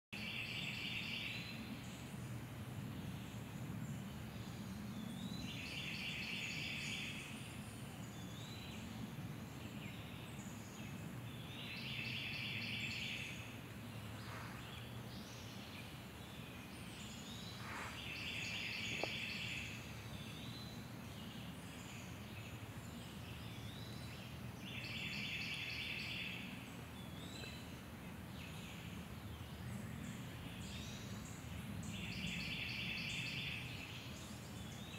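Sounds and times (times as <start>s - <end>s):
bird singing trilled song: 4.0s - 34.9s
birds high calls: 11.6s - 22.2s.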